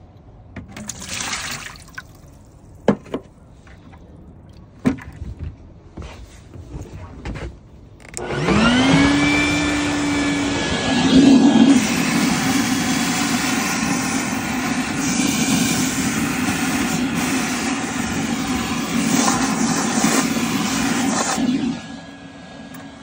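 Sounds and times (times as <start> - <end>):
vacuum hose sucking water: 0.8 - 2.4, 8.3 - 23.0
shop vacuum motor whine: 8.0 - 23.0.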